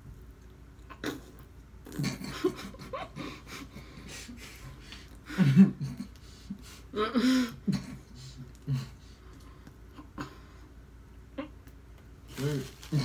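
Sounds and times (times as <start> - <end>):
heavy breathing: 3.2 - 10.8.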